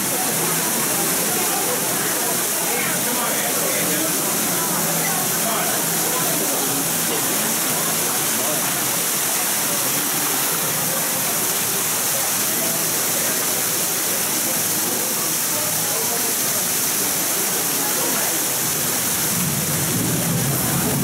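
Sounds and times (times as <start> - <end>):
faint chattering voices: 0.0 - 21.0
fountain water splashing: 0.0 - 21.0.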